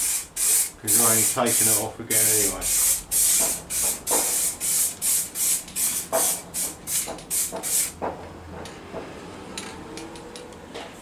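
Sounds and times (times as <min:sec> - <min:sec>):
aerosol can spraying: 0:00.0 - 0:08.0.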